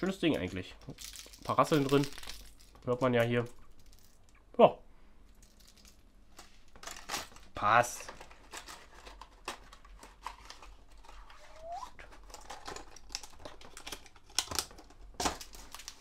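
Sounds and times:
short rising squeak: 11.3s - 12.0s
plastic packaging clicks and taps: 12.3s - 16.0s.

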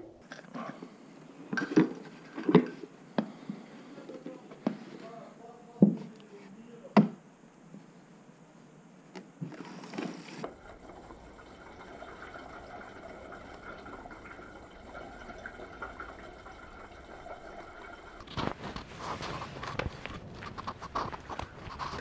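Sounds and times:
petrol pouring into tank: 9.9s - 22.0s.

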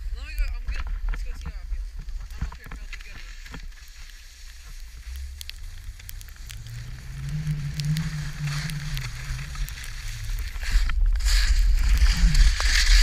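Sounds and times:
wind rumbling on microphone: 0.0s - 13.0s
skis scraping on snow: 0.1s - 13.0s
low hum: 4.6s - 13.0s.

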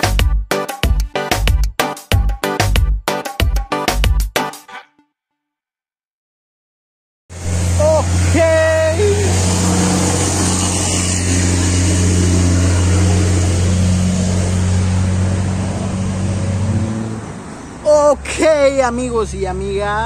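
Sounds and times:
motor humming: 7.4s - 15.1s.

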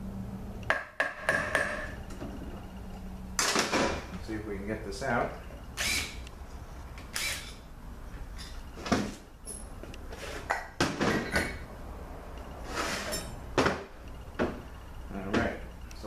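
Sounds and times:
metal parts clunking on workbench: 10.4s - 11.6s.

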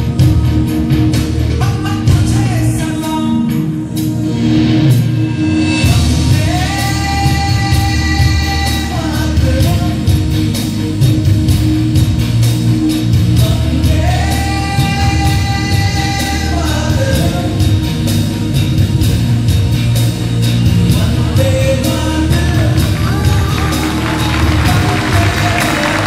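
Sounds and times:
song over loudspeakers: 0.0s - 26.0s
steady beat: 17.1s - 26.0s.

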